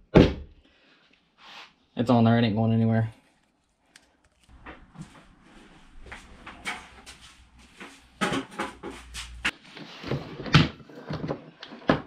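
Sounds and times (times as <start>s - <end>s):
pipe and cords being moved: 6.3s - 12.0s
objects knocking on wooden workbench: 8.2s - 9.1s.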